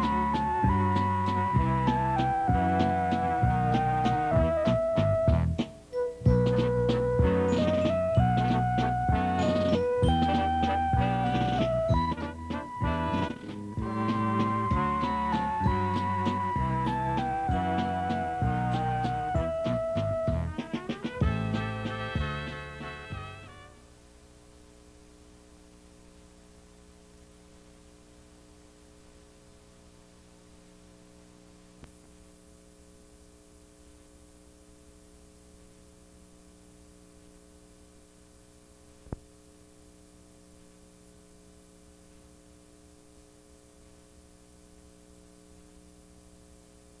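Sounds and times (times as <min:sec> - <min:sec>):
electrical mains hum: 0:00.0 - 0:47.0
videotape hiss: 0:00.0 - 0:47.0.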